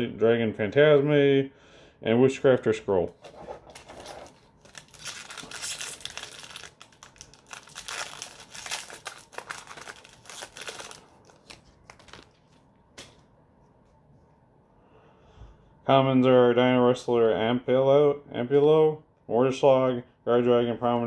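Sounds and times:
foil pack tearing and crinkling: 4.0 - 12.4.

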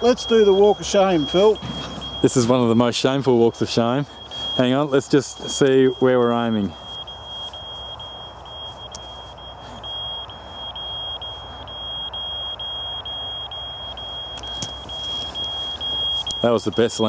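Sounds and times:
high-pitched alarm beeping: 0.0 - 17.0.

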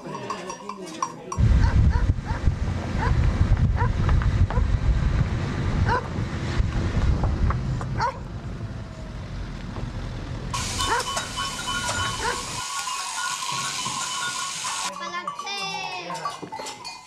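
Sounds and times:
wind buffeting microphone: 1.4 - 10.7
heavy low rumble: 1.4 - 10.8.

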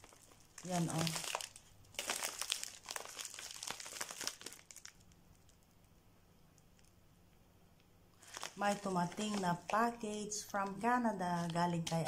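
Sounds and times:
plastic mailer crinkling: 0.0 - 5.6, 8.2 - 12.0.

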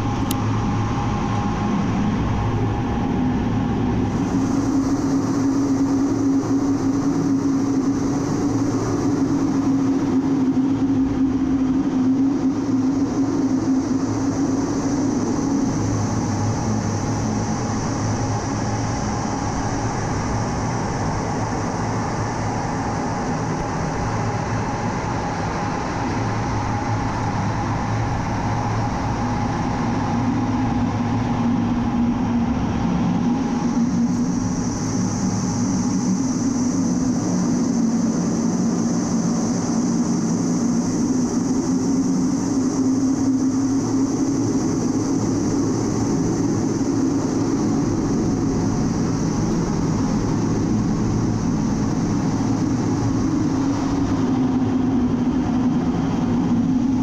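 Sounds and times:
low hum: 0.0 - 13.5
jet engine drone: 0.0 - 57.0
rushing air: 0.0 - 57.0.

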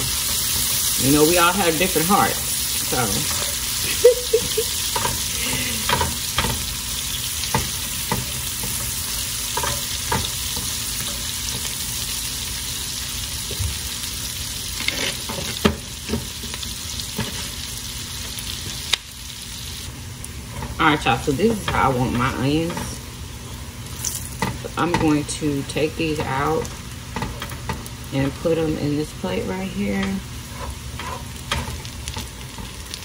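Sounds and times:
onions sizzling in a frying pan: 0.0 - 33.0
spatula scraping and knocking pan: 7.4 - 12.1, 30.0 - 32.9.

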